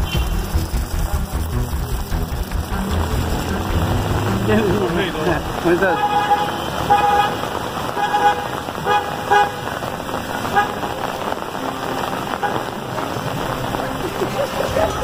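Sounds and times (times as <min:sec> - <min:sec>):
vehicle horn tooting: 0:00.0 - 0:00.6, 0:05.6 - 0:09.8, 0:10.4 - 0:11.0, 0:12.3 - 0:12.8
rain hiss: 0:00.0 - 0:15.0
traffic on wet street: 0:00.0 - 0:15.0.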